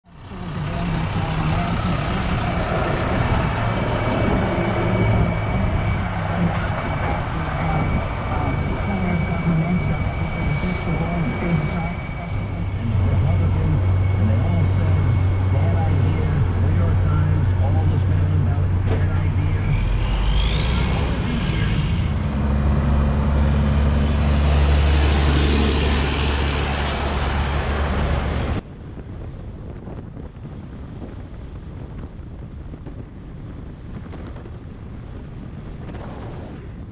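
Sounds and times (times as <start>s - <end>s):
truck diesel engine humming: 0.0s - 35.9s
wind noise: 0.6s - 36.9s.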